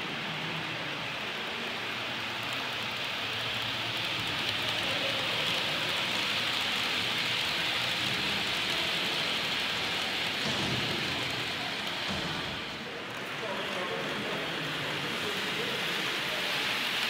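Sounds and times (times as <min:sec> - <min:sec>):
model train motor whir: 0:01.8 - 0:12.8.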